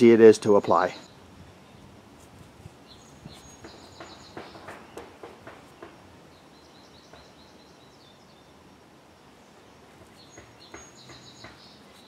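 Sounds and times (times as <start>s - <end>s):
small bird chirping: 2.7s - 8.6s, 9.4s - 12.0s.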